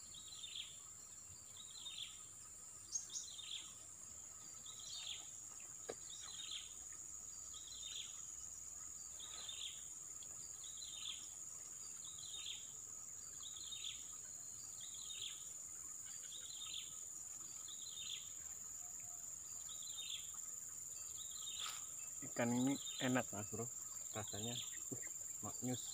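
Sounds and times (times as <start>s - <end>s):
high-pitched insect drone: 21.0s - 25.9s.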